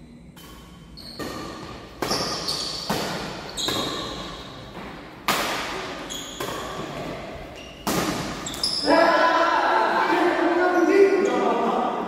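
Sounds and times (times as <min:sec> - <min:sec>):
shuttlecock hit by badminton rackets: 0:00.4 - 0:08.5.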